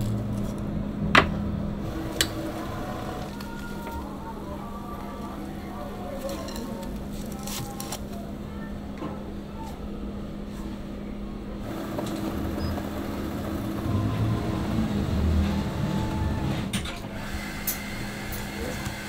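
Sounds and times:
kitchen machine hum: 0.0 - 8.4, 11.5 - 19.0
deep low rumble: 13.4 - 16.7.

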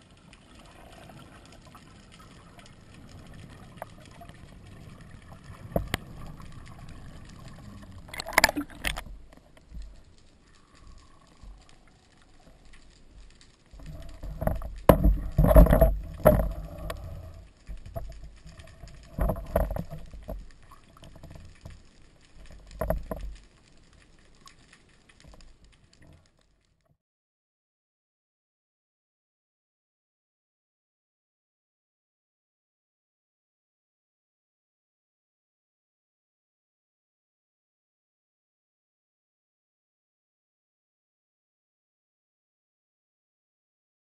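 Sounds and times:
underwater low rumble: 0.0 - 26.3
underwater splashy bursts: 0.4 - 9.3.

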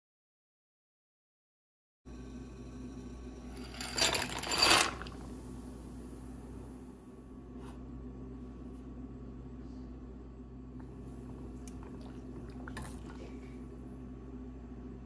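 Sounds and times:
steady low hum: 2.1 - 15.0.

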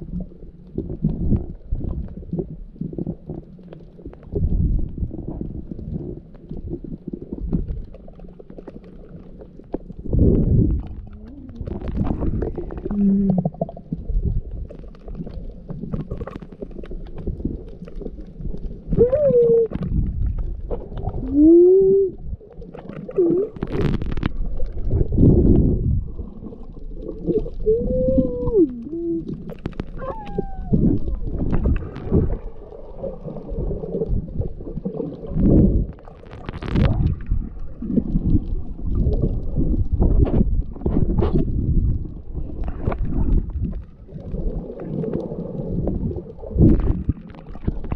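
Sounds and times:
reversed water gurgling and sloshing: 0.0 - 47.9
wavering voice-like glides: 18.9 - 19.8, 27.6 - 29.3, 30.0 - 31.2.

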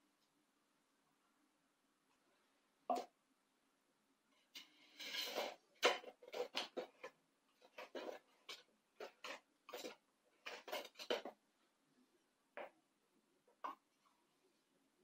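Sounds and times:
knife scraping metal pan: 4.9 - 7.1.

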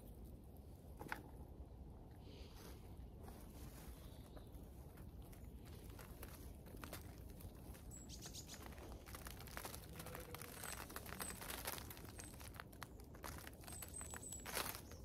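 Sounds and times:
rustling leaves and crumbling soil: 0.0 - 15.0
small bird chirping: 7.6 - 15.0.

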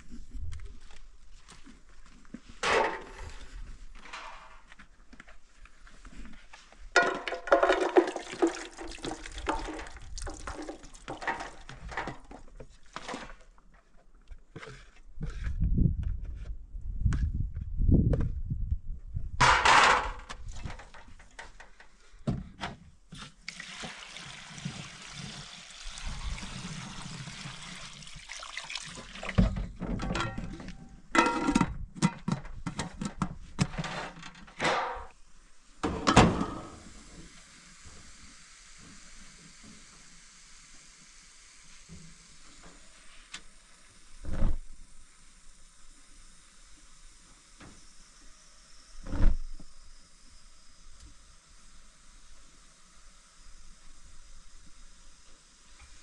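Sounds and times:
metal clanks and knocks: 7.0 - 7.9, 19.4 - 21.8, 29.8 - 35.1, 35.8 - 36.8
water pouring into a steel pot: 7.4 - 11.9, 23.5 - 29.4.

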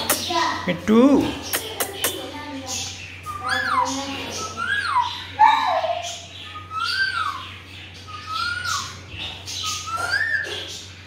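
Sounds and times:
parakeet whistled call: 3.2 - 10.9.

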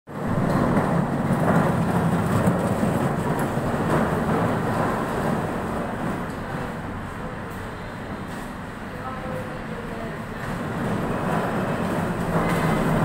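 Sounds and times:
hand cart wheels rumbling: 0.1 - 6.7, 10.2 - 13.0.

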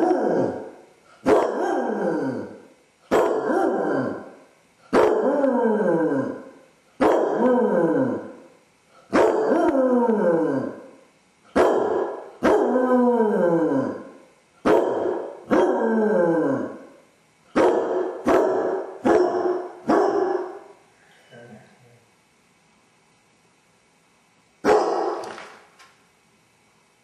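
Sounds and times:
dog baying: 0.0 - 4.3, 7.0 - 8.3, 9.1 - 10.8, 11.6 - 14.1, 14.7 - 16.8, 17.6 - 20.7, 24.7 - 25.3.

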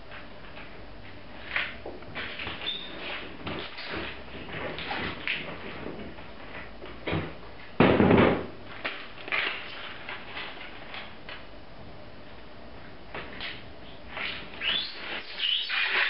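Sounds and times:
tape pulled from roll: 13.3 - 16.0.

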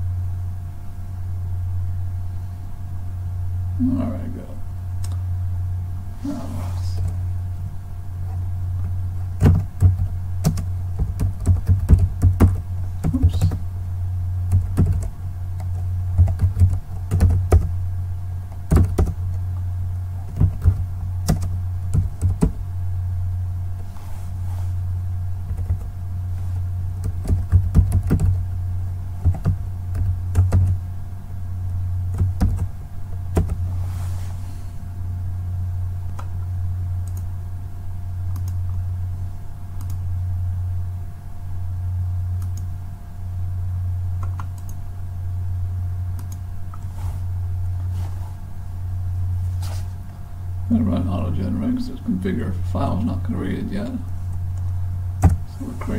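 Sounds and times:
steady low hum: 0.0 - 55.9
keyboard typing: 9.4 - 13.6, 14.5 - 17.7.

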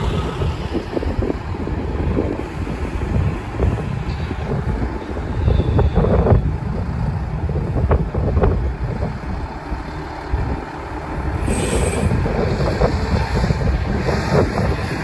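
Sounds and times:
bus engine rumble: 0.0 - 15.0
wind buffeting microphone: 0.0 - 15.0
brief hiss: 11.4 - 12.1.

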